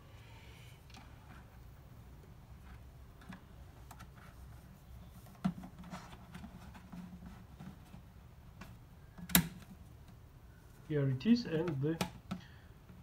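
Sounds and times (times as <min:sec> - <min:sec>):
plastic rubbing and tapping: 0:02.5 - 0:10.2.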